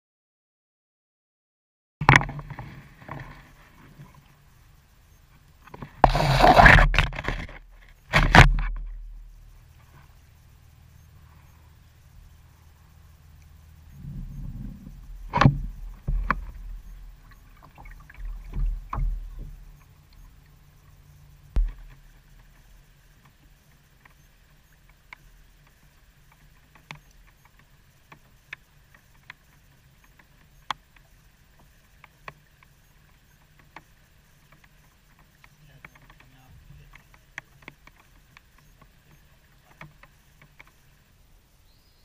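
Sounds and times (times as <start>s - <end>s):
faint clicks: 6.9s - 41.1s
knocks against boat hull: 21.6s - 22.0s.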